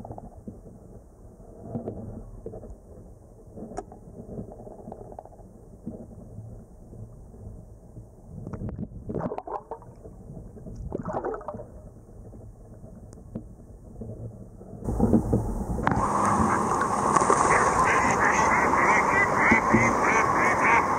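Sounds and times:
muffled water gurgling: 0:00.0 - 0:20.9
broad rush of noise: 0:14.9 - 0:20.9.

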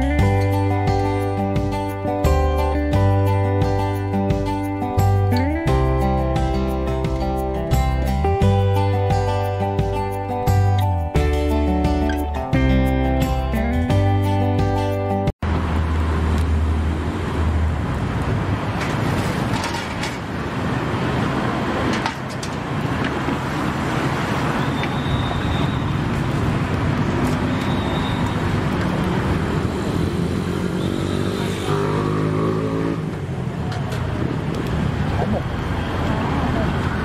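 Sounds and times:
road traffic rumble: 0:00.0 - 0:37.0.

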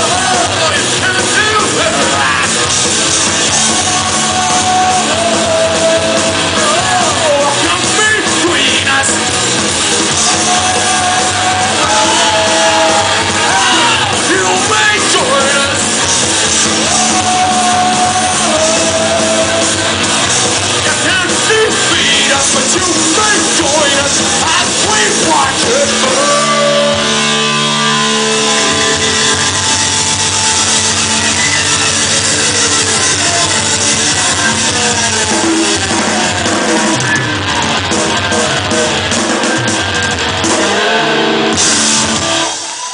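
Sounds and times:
singer shouting and singing: 0:00.0 - 0:29.7
punk rock band playing: 0:00.0 - 0:42.9.

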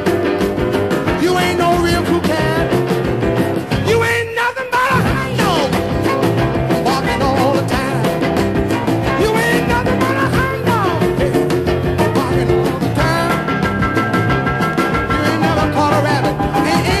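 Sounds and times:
steady drum beat: 0:00.0 - 0:04.2, 0:04.9 - 0:17.0
electric guitar: 0:00.0 - 0:17.0.

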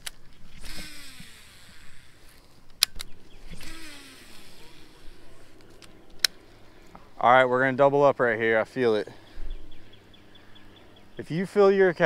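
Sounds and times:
reel spool whirring: 0:00.0 - 0:02.4, 0:03.2 - 0:06.0.

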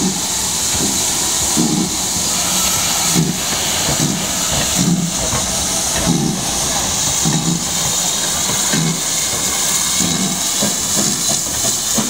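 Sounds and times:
steam hissing: 0:00.0 - 0:12.0
steam locomotive low beat: 0:00.0 - 0:12.0.

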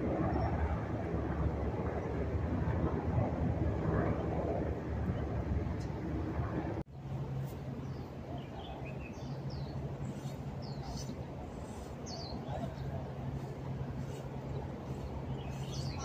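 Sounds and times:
city background noise: 0:00.0 - 0:16.0
steady low hum: 0:00.0 - 0:16.0
small birds chirping: 0:07.4 - 0:16.0.

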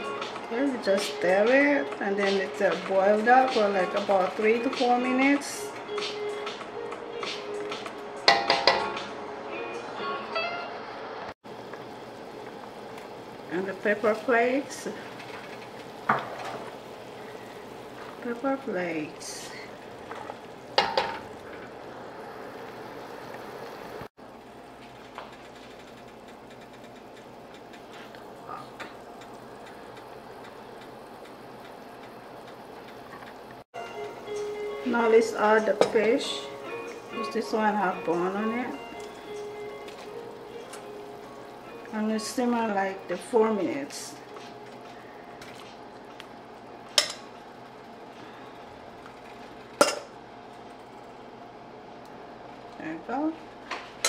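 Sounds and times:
broth boiling in a pot: 0:11.4 - 0:54.0.

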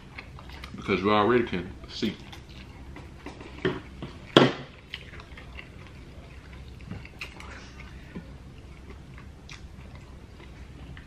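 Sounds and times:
chewing noises: 0:00.0 - 0:11.0.

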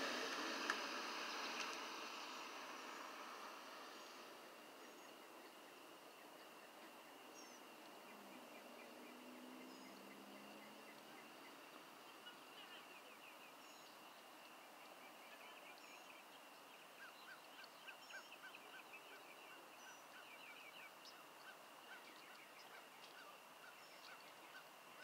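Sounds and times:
bird calls: 0:03.9 - 0:25.0.

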